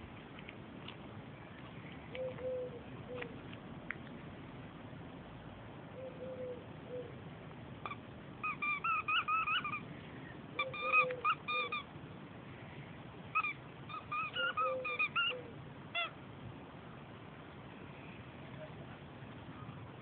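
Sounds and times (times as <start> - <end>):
squeaky toy squeaking: 7.8 - 9.9, 10.6 - 11.9, 13.3 - 16.2.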